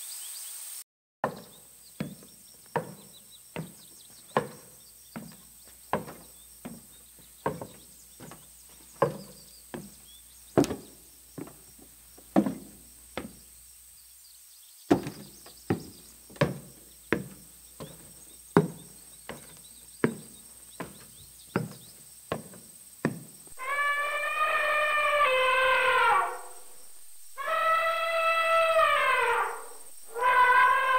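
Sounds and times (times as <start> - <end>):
elephant footsteps thudding: 1.2 - 13.5, 14.9 - 30.9.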